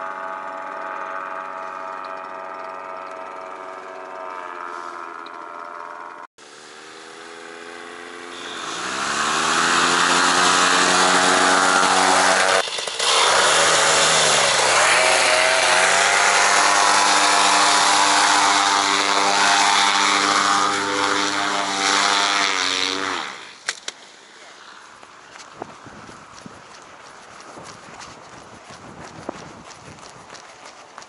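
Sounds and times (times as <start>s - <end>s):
paramotor engine revving: 0.0s - 23.6s
rushing propeller air: 0.0s - 31.0s.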